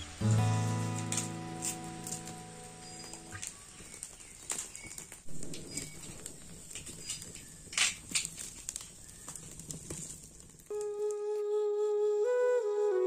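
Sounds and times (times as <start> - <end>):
wood fire crackling and popping: 0.0 - 11.5.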